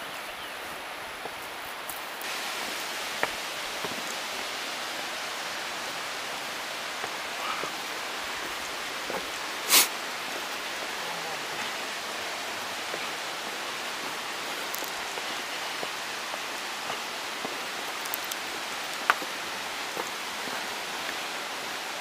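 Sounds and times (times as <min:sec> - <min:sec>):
waterfall rushing: 0:00.0 - 0:22.0
small clicks: 0:18.0 - 0:18.4.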